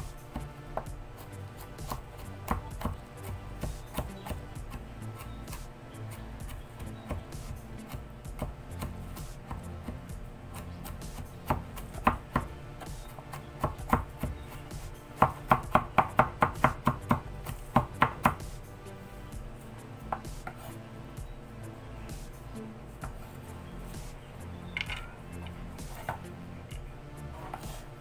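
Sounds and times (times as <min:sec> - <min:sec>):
knife chopping on cutting board: 0:00.3 - 0:18.6, 0:20.1 - 0:20.8, 0:23.0 - 0:24.2, 0:25.8 - 0:26.3, 0:27.4 - 0:28.0.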